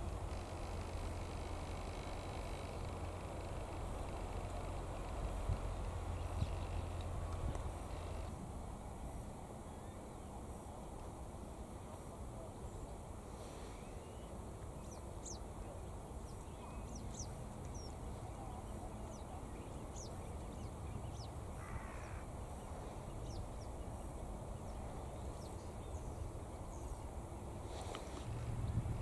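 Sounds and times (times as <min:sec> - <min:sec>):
small birds chirping: 0:00.0 - 0:08.3, 0:13.6 - 0:29.0
low background rumble: 0:00.0 - 0:12.8, 0:14.8 - 0:29.0
crow cawing: 0:21.6 - 0:22.3.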